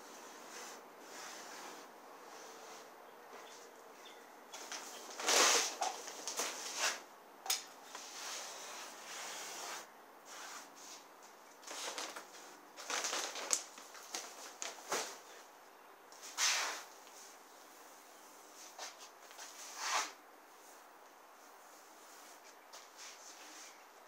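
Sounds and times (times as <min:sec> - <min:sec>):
gritty sand scraping and crunching: 0:05.2 - 0:05.8.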